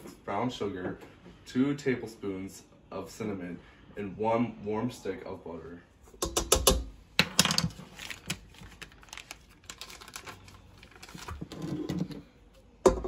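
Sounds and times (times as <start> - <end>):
butter wrapper peeling: 7.9 - 11.4.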